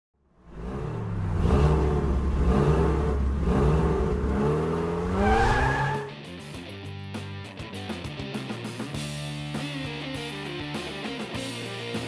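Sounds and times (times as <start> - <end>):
car engine revving: 0.3 - 6.2.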